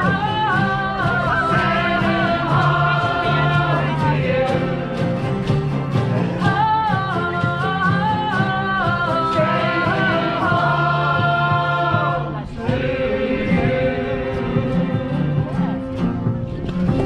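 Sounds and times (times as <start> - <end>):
group singing in harmony: 0.0 - 5.8, 6.4 - 16.4
acoustic guitars: 0.0 - 17.0.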